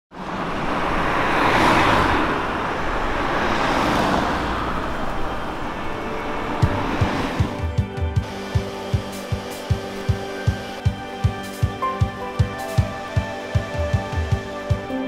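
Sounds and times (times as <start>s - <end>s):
cars driving past: 0.1s - 10.8s
low music beat: 6.6s - 15.0s.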